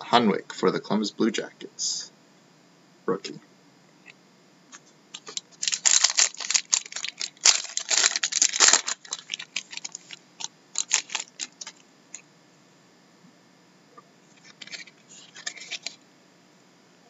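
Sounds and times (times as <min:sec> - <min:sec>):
foil wrapper tearing and crinkling: 0:05.2 - 0:11.8, 0:14.4 - 0:16.0.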